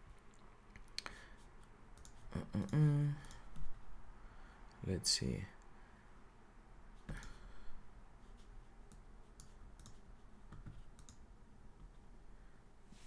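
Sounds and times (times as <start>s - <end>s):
faint computer mouse clicks: 8.9s - 11.2s.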